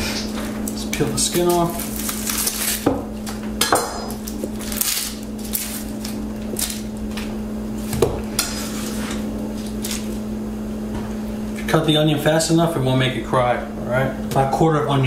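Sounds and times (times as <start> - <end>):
onion skin crackling and rustling: 0.1 - 3.4, 4.1 - 10.3.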